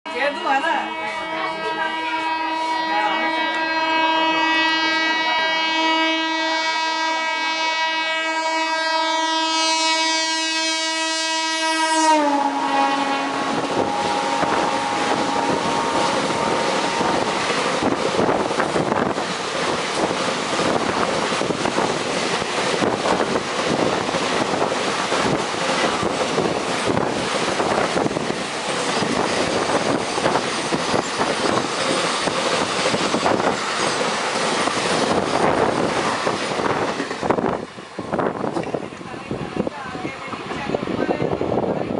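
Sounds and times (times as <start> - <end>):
locomotive horn blast: 0.1 - 18.4.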